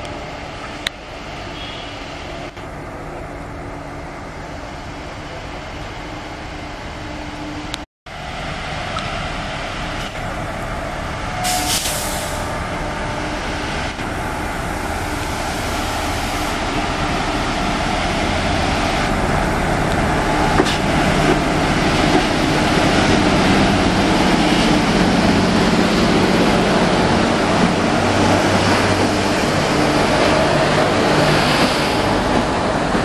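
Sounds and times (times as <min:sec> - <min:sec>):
electric train passing: 0:00.1 - 0:33.0
brief hiss: 0:11.4 - 0:12.5.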